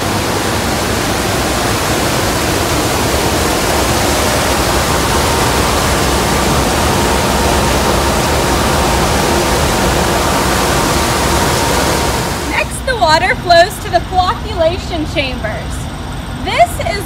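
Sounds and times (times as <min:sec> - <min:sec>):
water churning from mixer: 0:00.0 - 0:14.8.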